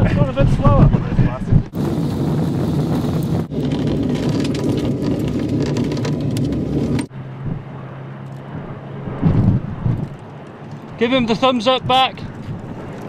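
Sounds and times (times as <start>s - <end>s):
loud wind rush: 0.0s - 13.0s
tyre rumble: 1.5s - 7.6s
fast rattling: 3.4s - 7.1s.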